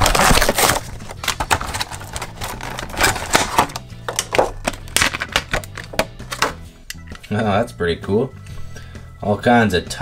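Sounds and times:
plastic packaging crinkling: 0.0s - 6.0s
background music: 0.0s - 10.0s.

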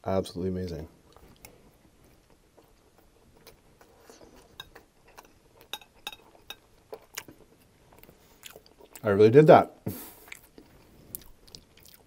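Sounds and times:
metal spoon clinking on glass bowl: 5.7s - 6.7s.

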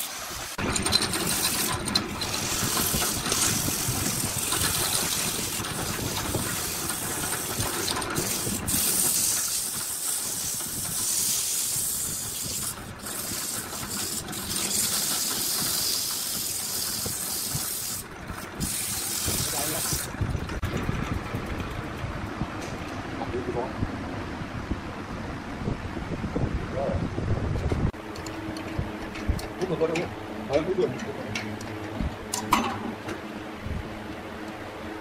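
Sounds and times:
sandpaper hissing on turning wood: 0.0s - 20.2s.

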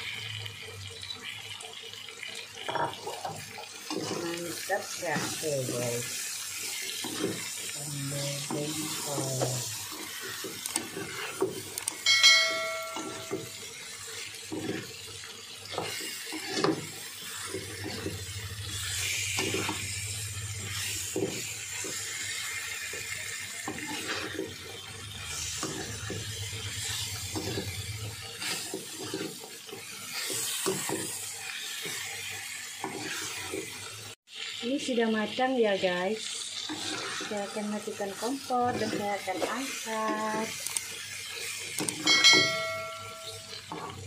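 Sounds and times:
food sizzling: 0.0s - 44.0s
metal spatula scraping a wok: 3.1s - 11.7s, 12.3s - 33.8s, 36.4s - 44.0s
wok ringing: 11.9s - 16.7s, 17.8s - 30.6s, 41.9s - 44.0s.

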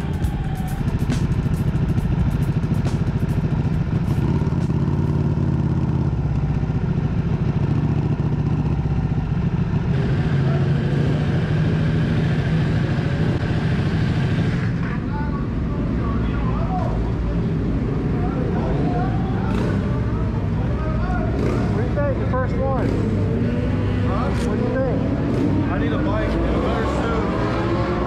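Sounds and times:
motorcycle engine at low revs: 0.9s - 14.8s.

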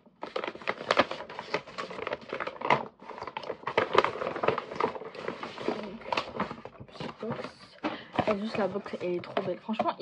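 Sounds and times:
paper bag rustling: 0.2s - 9.8s.

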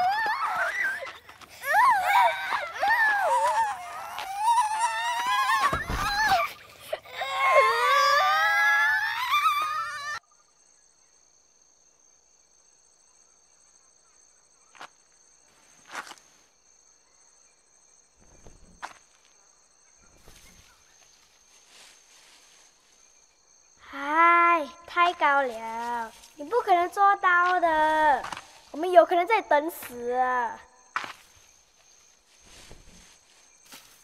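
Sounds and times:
girl wailing: 0.0s - 10.2s
high insect drone: 0.0s - 34.0s.

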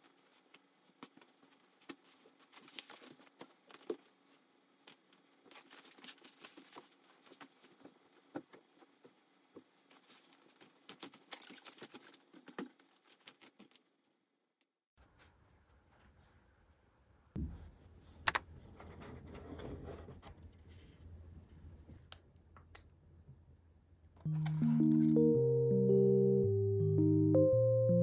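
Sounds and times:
soft footsteps on floor mat: 0.0s - 5.2s.

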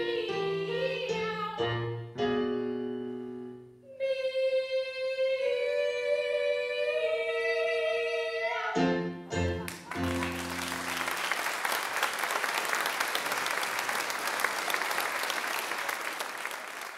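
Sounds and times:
women singing duet: 0.0s - 1.8s, 3.9s - 8.9s
piano chords: 0.0s - 3.8s, 8.7s - 11.2s
audience applause: 9.7s - 16.9s.

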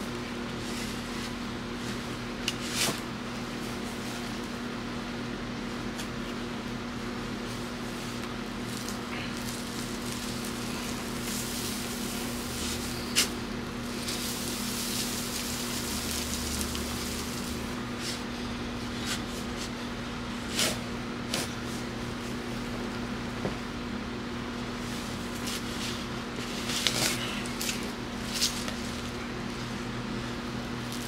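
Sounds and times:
steady low hum: 0.0s - 31.0s
dirt rustling and crumbling: 7.4s - 18.3s
shovel blade striking ground: 12.6s - 13.4s.

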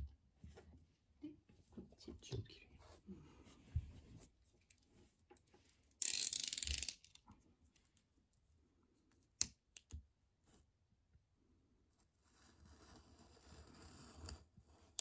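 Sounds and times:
utility knife blade ratcheting: 6.0s - 7.2s.

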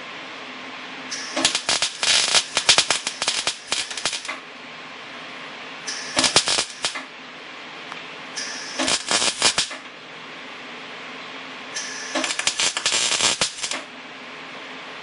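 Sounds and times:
steady hiss: 1.0s - 4.4s, 5.4s - 7.0s, 8.2s - 9.8s, 11.6s - 13.8s
welder arc crackling: 1.1s - 4.4s, 5.9s - 7.1s, 8.4s - 9.9s, 11.8s - 13.9s.

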